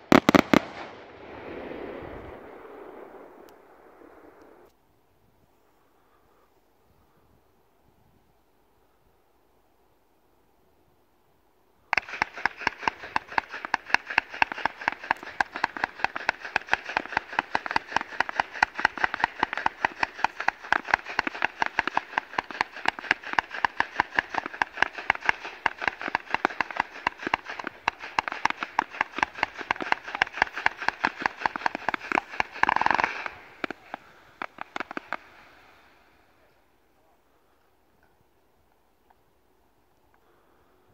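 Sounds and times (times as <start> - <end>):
firework cracks and bangs: 0.0 - 4.7, 12.0 - 36.2.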